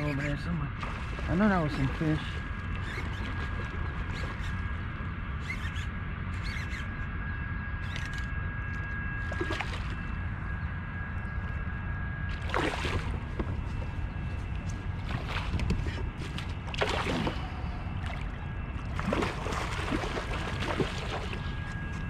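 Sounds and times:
steady low rumble: 0.0s - 22.0s
thin steady whine: 0.0s - 22.0s
fish splashing at the surface: 12.3s - 13.3s, 16.2s - 18.3s, 18.9s - 21.6s.

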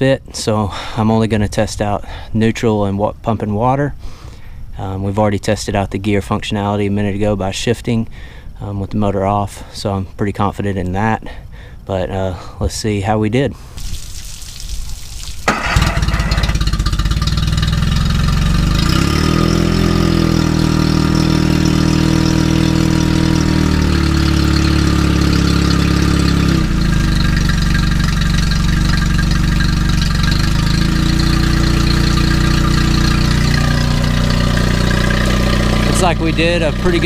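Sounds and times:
outboard engine starting and running: 15.4s - 37.0s.

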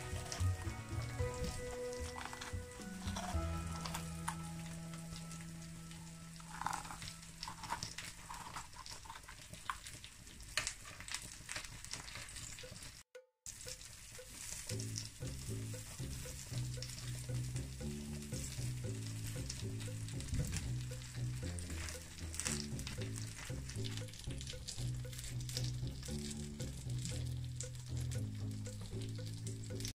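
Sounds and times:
food sizzling in oil: 0.0s - 29.9s
food pieces clicking on griddle: 6.5s - 29.9s.

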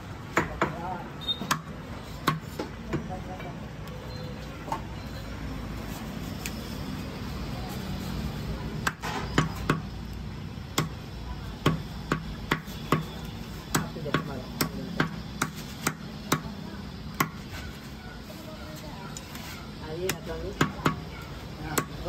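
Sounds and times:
cleaver chopping on wooden block: 8.8s - 9.9s, 10.7s - 11.0s, 11.6s - 16.5s, 17.1s - 17.4s, 21.6s - 22.0s.

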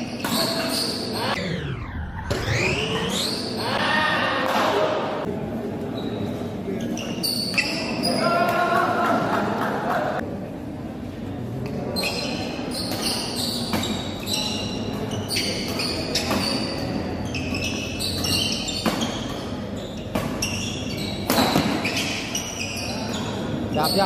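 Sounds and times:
shoes squeaking on court: 0.0s - 1.3s, 5.9s - 8.3s, 11.9s - 24.0s
racket hitting shuttlecock: 18.2s - 19.5s, 21.2s - 21.9s.

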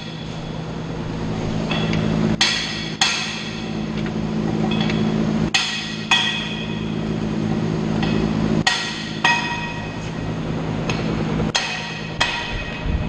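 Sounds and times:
steady low hum: 0.0s - 13.0s
hammer ringing on steel: 5.5s - 7.0s, 8.0s - 10.0s, 11.5s - 12.9s.

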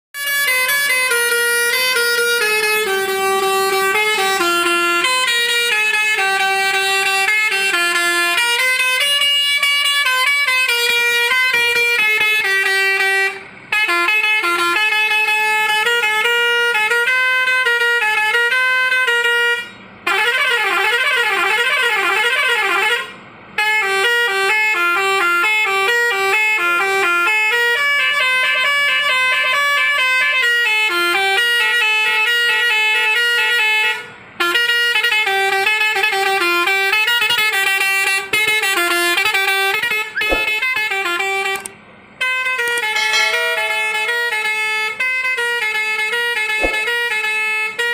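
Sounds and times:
truck musical horn tunes: 0.2s - 47.9s
warbling siren-like tone: 42.8s - 44.7s, 46.6s - 47.1s.

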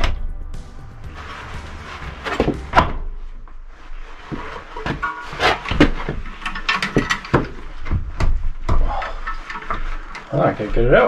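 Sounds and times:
tools knocking and clanking on metal: 4.3s - 10.3s.

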